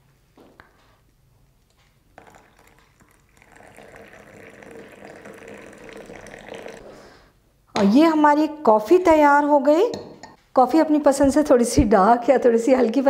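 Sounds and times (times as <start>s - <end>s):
milk pouring into a glass cup: 2.1s - 7.2s.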